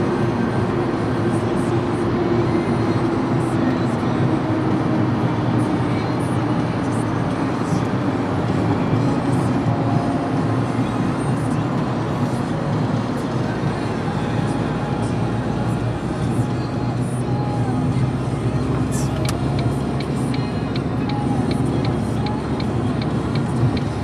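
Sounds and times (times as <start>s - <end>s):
car road and engine noise: 0.0s - 24.0s.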